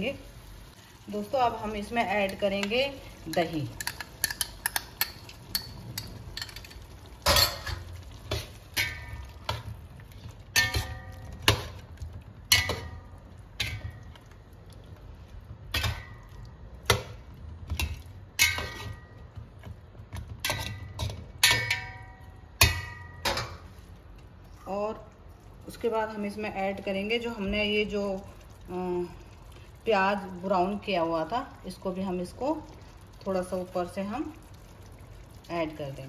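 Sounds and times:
metal spatula scraping copper pot: 17.8 - 19.2, 20.4 - 23.4.

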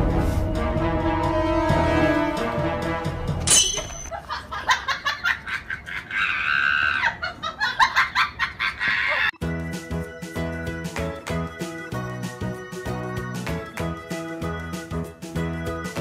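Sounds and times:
background music: 0.0 - 4.1, 9.4 - 16.0
comedy laugh effect: 4.0 - 9.4.

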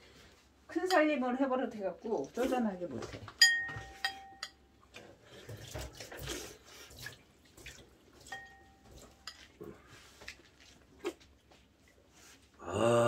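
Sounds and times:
ringing clink: 3.4 - 4.6
utensils tapping bowls: 3.4 - 4.6, 8.2 - 9.6.

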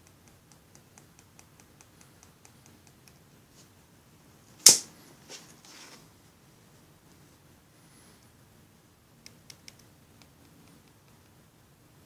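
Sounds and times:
sharp loud knock: 4.6 - 4.9.

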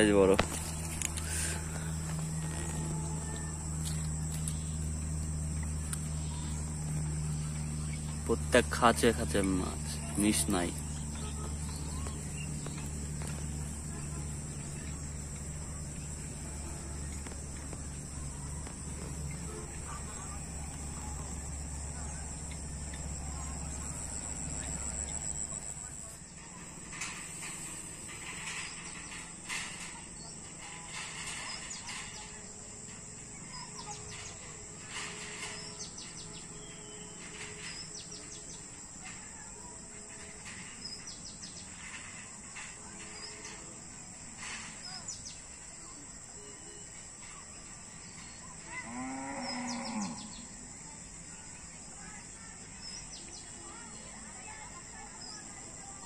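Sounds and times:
low steady hum: 0.0 - 39.4
small birds chirping: 0.0 - 43.7, 44.4 - 56.0
insects droning: 0.0 - 56.0.

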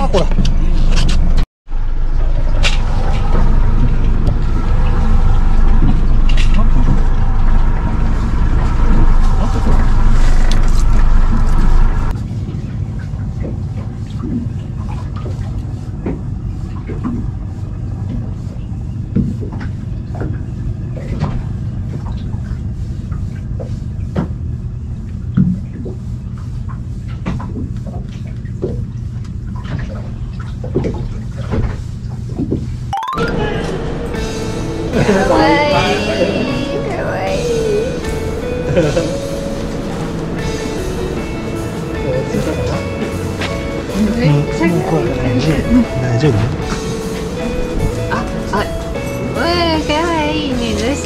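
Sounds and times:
engine running: 0.0 - 14.8, 33.5 - 51.0.

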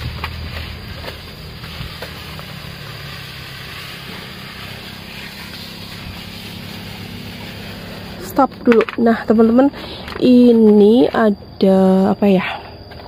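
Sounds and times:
spray hissing from nozzle: 0.0 - 8.6
sprayer motor hum: 0.0 - 11.0.

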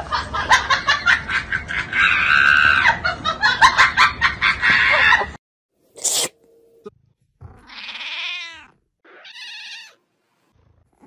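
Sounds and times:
cat meowing: 7.6 - 10.0.

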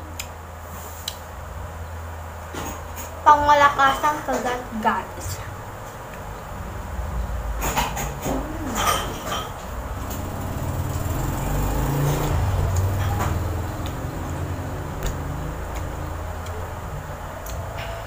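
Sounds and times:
low rumble: 4.7 - 18.0.

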